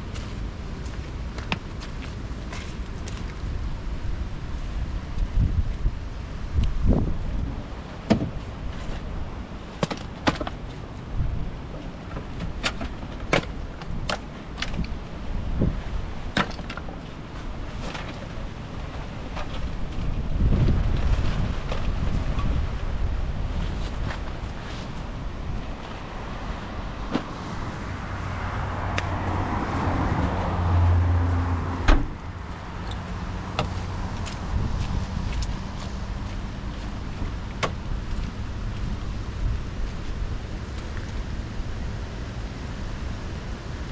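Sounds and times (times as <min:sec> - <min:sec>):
wind rumble on microphone: 0:00.0 - 0:43.9
car trunk lid slamming: 0:31.8 - 0:32.2.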